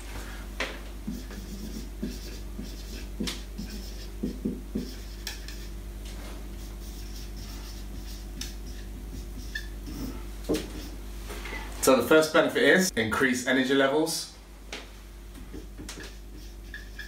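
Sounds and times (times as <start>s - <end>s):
marker scratching on whiteboard: 1.0s - 11.0s, 15.5s - 17.0s.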